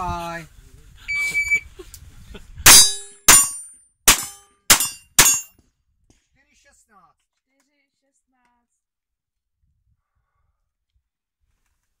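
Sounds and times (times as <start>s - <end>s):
pistol shots: 2.7s - 5.5s
steel target plate ringing: 2.7s - 5.5s.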